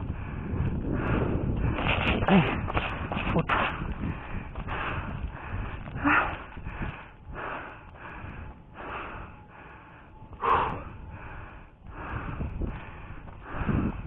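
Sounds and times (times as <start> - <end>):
person breathing hard: 0.0 - 14.0.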